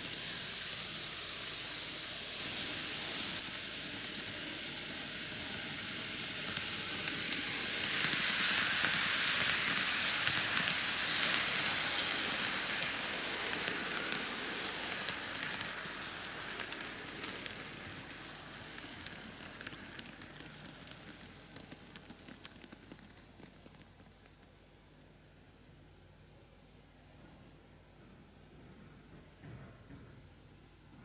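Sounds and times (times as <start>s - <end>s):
clicks of model train: 0.0s - 24.6s
model train wheels on rails: 0.0s - 24.8s.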